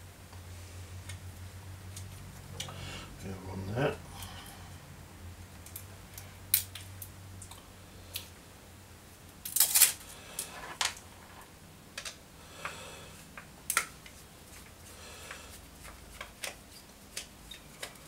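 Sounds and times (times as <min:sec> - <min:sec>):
small clicks of plastic and metal parts: 0:05.6 - 0:08.3, 0:15.8 - 0:18.0
clatter of parts: 0:09.4 - 0:12.2.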